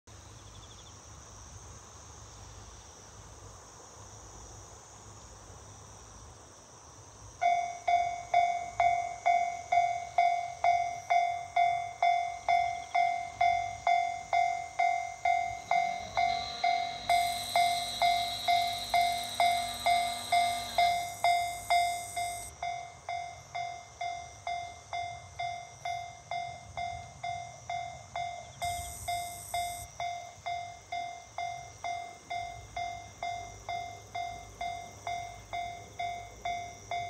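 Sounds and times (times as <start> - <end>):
level crossing warning bell: 7.4 - 37.0
low hum: 12.6 - 22.5.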